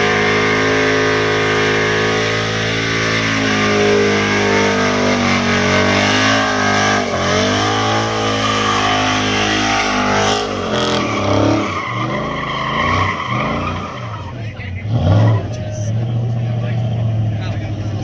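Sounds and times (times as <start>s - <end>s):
spinning tyres squealing: 0.0s - 18.0s
truck engine revving high: 0.0s - 18.0s.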